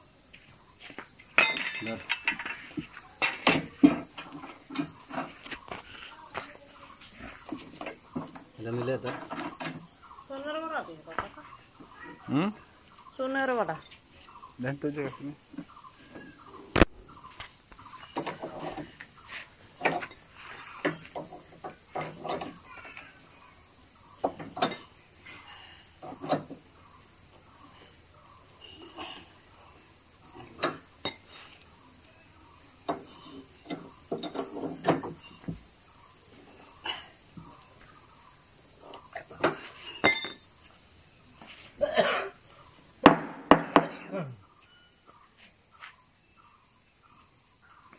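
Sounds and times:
high-pitched insect chorus: 0:00.0 - 0:47.9
people talking: 0:10.3 - 0:11.6.

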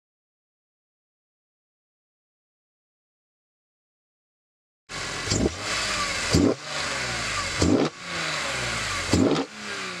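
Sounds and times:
car engine revving and accelerating: 0:04.9 - 0:10.0
sharp loud exhaust bursts: 0:04.9 - 0:10.0.

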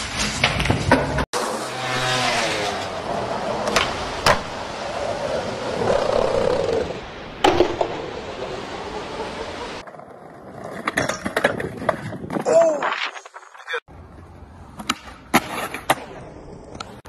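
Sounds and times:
board scraping on concrete: 0:00.0 - 0:06.0, 0:09.8 - 0:12.4
skateboard wheels rolling: 0:00.0 - 0:17.0.

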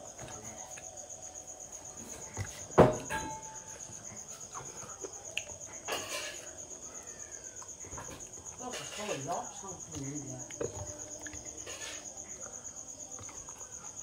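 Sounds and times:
insect trilling: 0:03.4 - 0:14.0.

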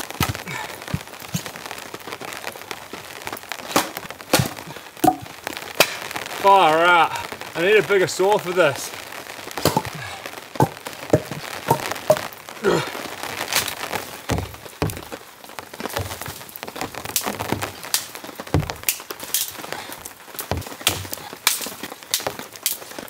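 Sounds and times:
wet branches snapping: 0:03.6 - 0:06.0, 0:13.4 - 0:22.9
wood thunks: 0:04.3 - 0:05.3, 0:09.6 - 0:10.0, 0:10.6 - 0:12.3, 0:14.3 - 0:15.2, 0:15.9 - 0:16.4, 0:18.5 - 0:18.9, 0:20.5 - 0:21.2.

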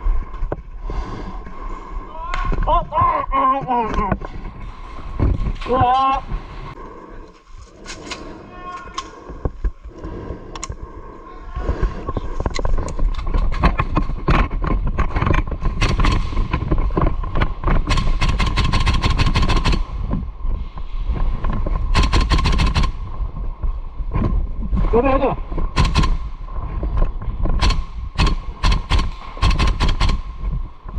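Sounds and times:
airsoft guns firing: 0:15.8 - 0:16.5, 0:17.9 - 0:19.9, 0:21.9 - 0:23.0, 0:25.8 - 0:26.3, 0:27.6 - 0:30.3.

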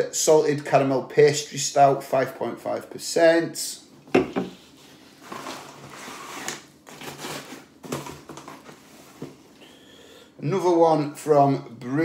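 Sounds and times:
rustling and scraping in a box: 0:04.5 - 0:09.5.

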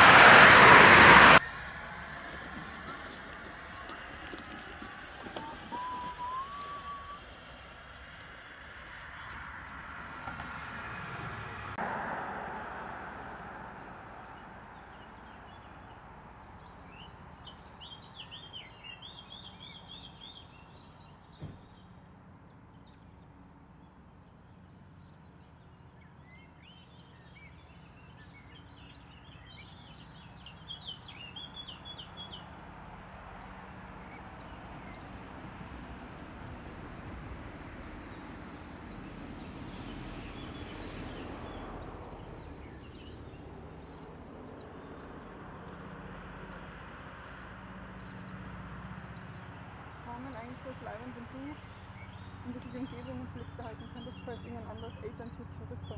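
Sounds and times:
outdoor background noise: 0:00.0 - 0:55.9
birds chirping in high trills: 0:03.1 - 0:07.8, 0:13.9 - 0:32.7, 0:36.2 - 0:46.7, 0:47.3 - 0:55.9.

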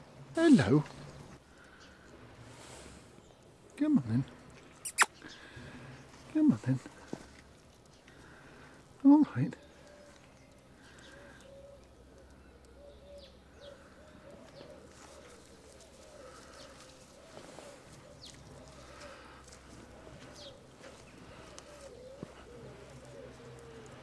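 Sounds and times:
small birds chirping: 0:00.0 - 0:24.0
alpacas humming: 0:13.6 - 0:24.0.

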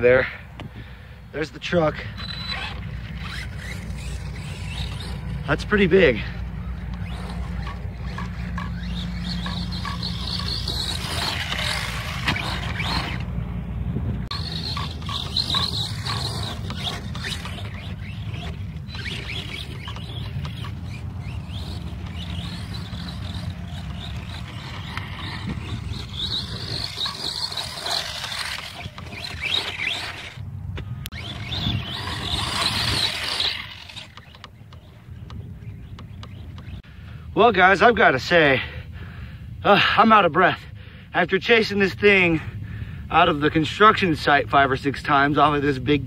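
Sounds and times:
wind rumbling on microphone: 0:00.0 - 0:37.2
hissing and scraping: 0:14.3 - 0:30.4.

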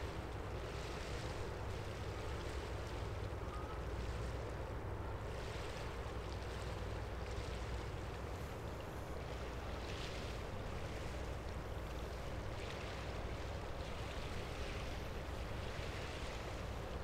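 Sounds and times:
water wash: 0:00.0 - 0:17.0.

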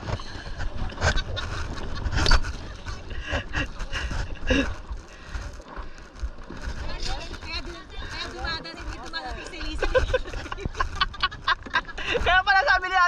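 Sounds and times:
low rumbling wind on microphone: 0:00.0 - 0:13.0.

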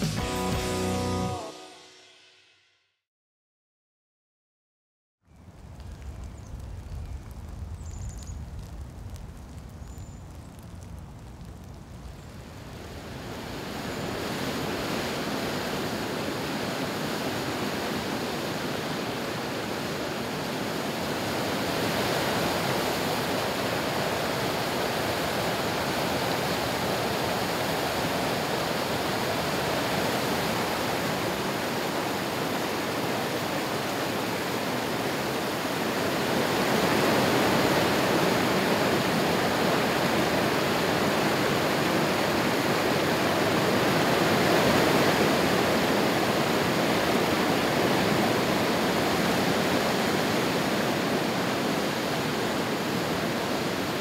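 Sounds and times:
water rushing over rapids: 0:12.8 - 0:54.0.

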